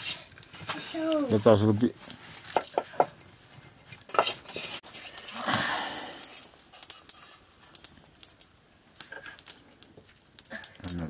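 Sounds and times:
cooking clicks and scrapes: 0:00.0 - 0:11.0
breathy sound: 0:04.5 - 0:06.5.

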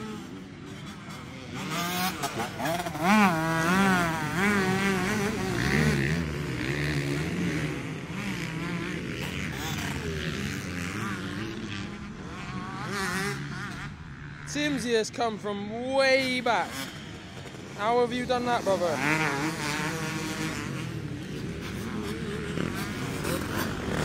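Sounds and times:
motocross bikes revving: 0:00.0 - 0:24.0.

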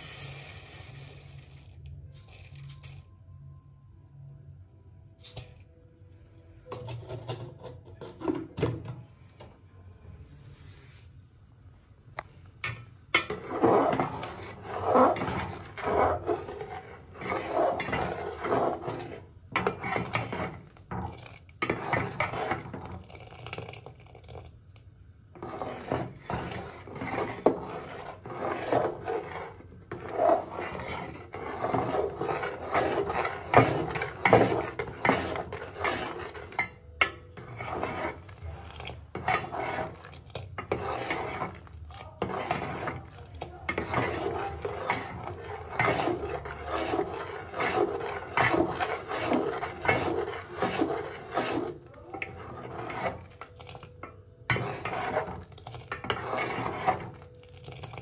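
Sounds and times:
metal ladle scraping a pot: 0:06.6 - 0:08.9, 0:12.6 - 0:24.5, 0:25.3 - 0:58.0.

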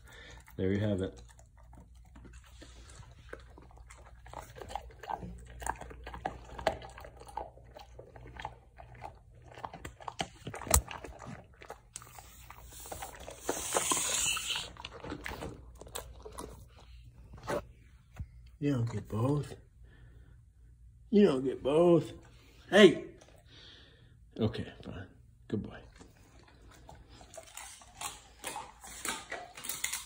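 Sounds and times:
dog chewing crunchy treat: 0:00.0 - 0:17.7, 0:25.9 - 0:30.0.

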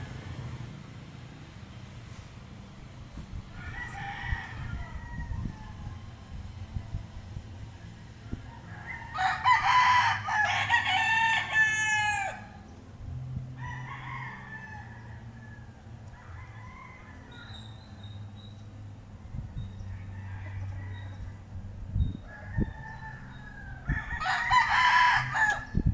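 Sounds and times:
faint rooster calls: 0:03.1 - 0:06.3, 0:13.5 - 0:18.3
rooster crowing: 0:03.5 - 0:06.2, 0:08.2 - 0:12.6, 0:13.5 - 0:18.2, 0:19.9 - 0:21.4, 0:22.1 - 0:25.8.

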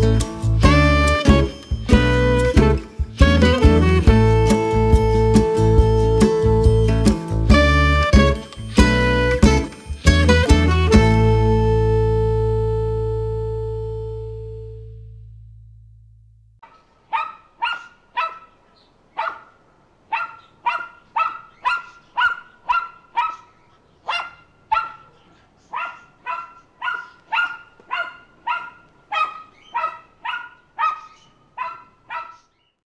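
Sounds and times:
background music: 0:00.0 - 0:14.8
dog barking: 0:16.6 - 0:32.6.

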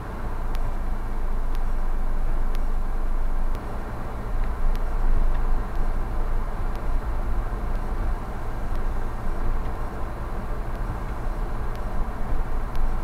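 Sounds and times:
engine and road rumble: 0:00.0 - 0:13.0
faint sharp clicks: 0:00.5 - 0:00.7, 0:06.7 - 0:06.9, 0:10.7 - 0:12.0, 0:12.7 - 0:13.0.

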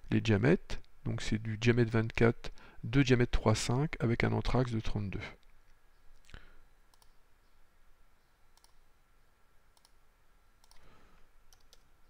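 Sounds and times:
computer mouse clicks: 0:06.9 - 0:07.2, 0:08.6 - 0:08.8, 0:09.8 - 0:10.0, 0:10.6 - 0:10.9, 0:11.5 - 0:11.9.

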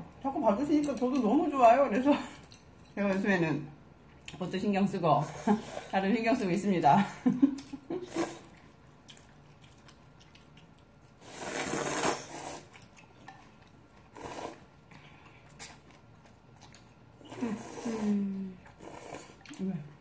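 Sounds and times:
noodles being slurped: 0:08.0 - 0:19.7
mouth and chewing clicks: 0:09.0 - 0:11.2, 0:14.9 - 0:17.0.

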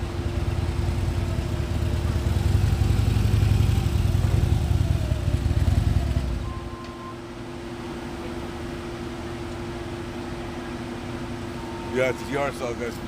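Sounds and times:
motorcycle engine running: 0:00.0 - 0:06.4.

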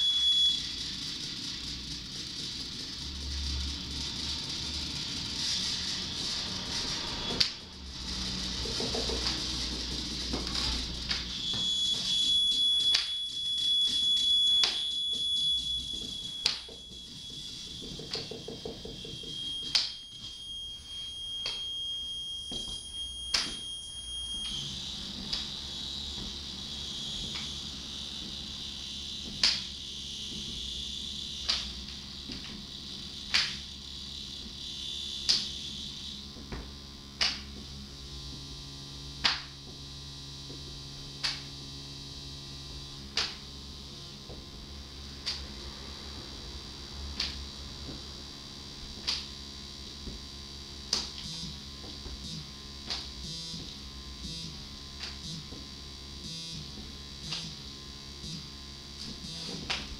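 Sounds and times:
high-pitched electronic beep tone: 0:00.0 - 0:01.7, 0:10.7 - 0:31.8, 0:33.1 - 0:36.2, 0:51.2 - 0:51.6, 0:59.2 - 0:59.7
hissing high electronic drone: 0:00.0 - 0:21.6, 0:22.4 - 0:40.4, 0:41.0 - 0:59.9
low electronic hum: 0:00.0 - 0:59.9.

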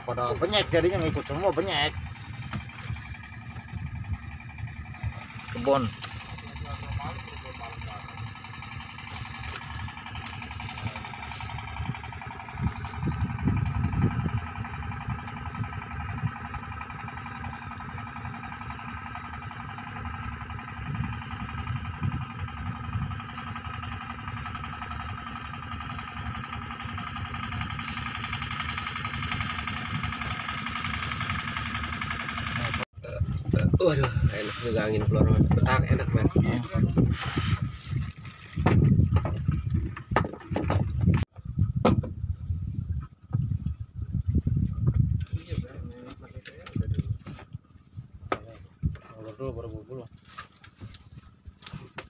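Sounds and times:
wind buffeting microphone: 0:00.0 - 0:24.8, 0:33.0 - 0:49.2
boat engine droning: 0:00.0 - 0:52.0.

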